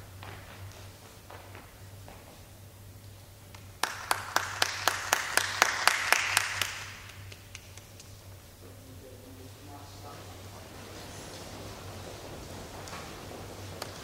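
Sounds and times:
close hands clapping sharply: 0:03.5 - 0:08.2
small group applause: 0:03.6 - 0:08.1.

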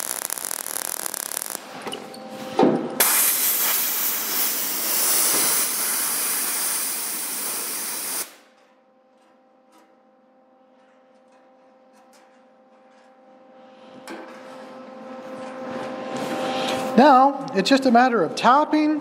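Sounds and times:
air blow gun puff: 0:03.0 - 0:08.4
compressed air hissing: 0:03.0 - 0:08.4.

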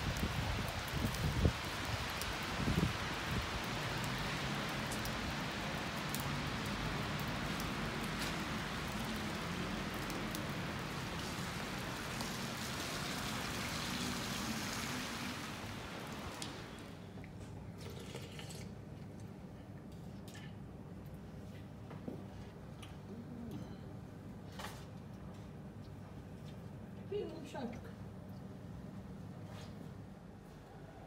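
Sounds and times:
snow and rain on wet pavement: 0:00.0 - 0:19.4.

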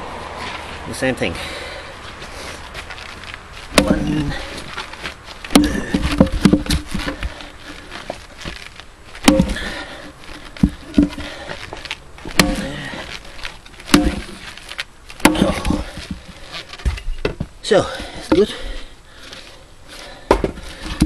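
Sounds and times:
axe chopping wood: 0:03.7 - 0:04.6, 0:05.5 - 0:07.4, 0:09.2 - 0:10.0, 0:10.6 - 0:11.5, 0:12.2 - 0:13.2, 0:13.8 - 0:14.6, 0:15.2 - 0:17.4, 0:18.0 - 0:18.7, 0:20.3 - 0:21.0.

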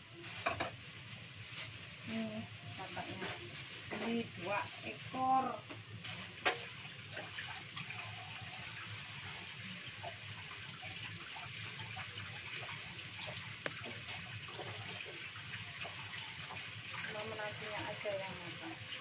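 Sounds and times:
tap running into a sink: 0:06.4 - 0:08.1, 0:12.4 - 0:17.2.

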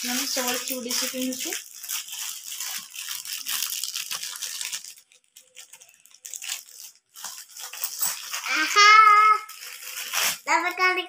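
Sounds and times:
bangles jangling: 0:00.0 - 0:01.6, 0:07.6 - 0:08.4.

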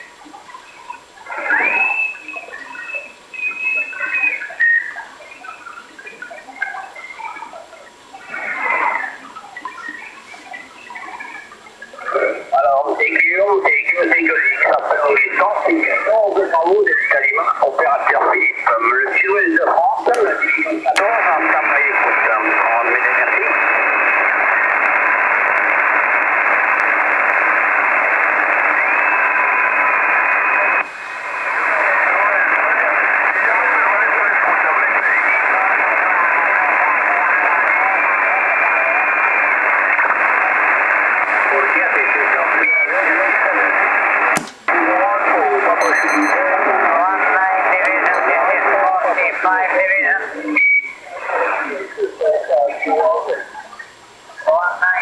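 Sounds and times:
radio whistling tones: 0:00.0 - 0:07.5, 0:08.2 - 0:25.3, 0:37.4 - 0:51.8
radio chirps: 0:00.0 - 0:55.0.

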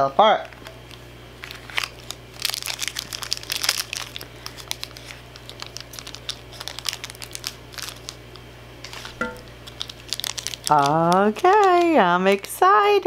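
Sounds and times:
plastic wrapper crinkling: 0:00.5 - 0:13.0.

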